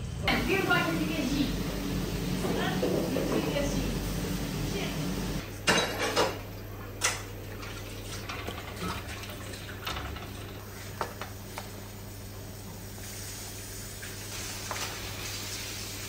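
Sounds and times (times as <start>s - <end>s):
steady low hum: 0.0s - 5.6s
pan and utensils clanking: 1.8s - 10.6s.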